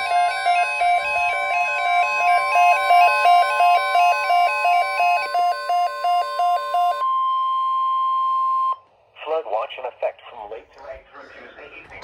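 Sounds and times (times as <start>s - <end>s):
steady high alert tone: 0.0s - 7.8s
two-note alarm beeps: 0.0s - 8.8s.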